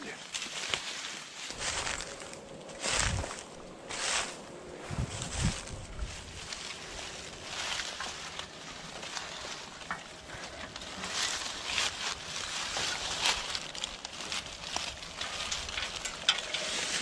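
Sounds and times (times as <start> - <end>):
dry leaves rustling: 0.0 - 17.0
metal frame clicks and clanks: 15.1 - 17.0.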